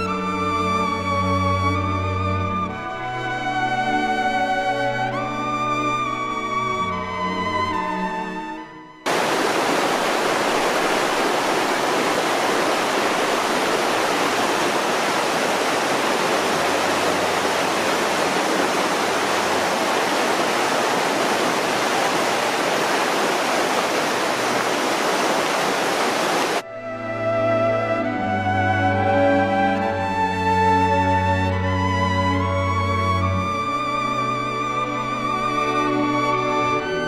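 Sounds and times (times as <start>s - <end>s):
music: 0.0s - 9.1s, 26.6s - 37.0s
mountain river rushing: 9.1s - 26.6s.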